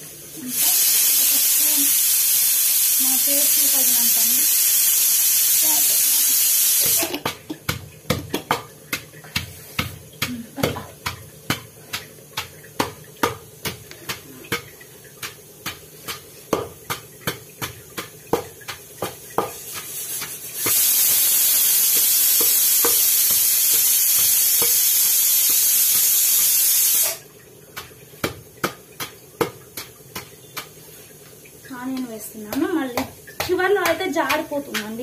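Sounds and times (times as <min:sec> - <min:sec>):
loud steady hiss: 0:00.0 - 0:07.2, 0:19.4 - 0:27.2
pestle pounding in stone mortar: 0:06.8 - 0:26.4, 0:27.7 - 0:30.8, 0:31.7 - 0:35.0.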